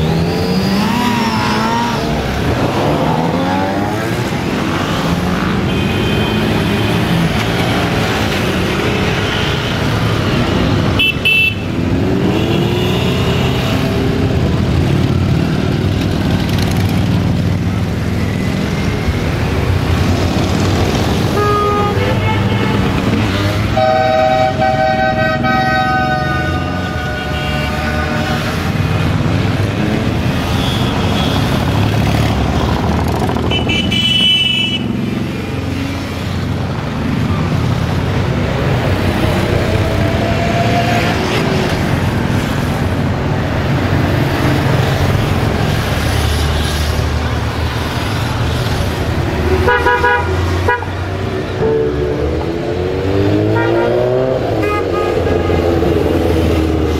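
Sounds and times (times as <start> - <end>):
motorcycles passing: 0.0 - 56.9
horns honking: 5.4 - 7.4, 8.8 - 14.1, 21.2 - 29.0, 33.5 - 35.2, 49.5 - 52.6, 53.2 - 56.2.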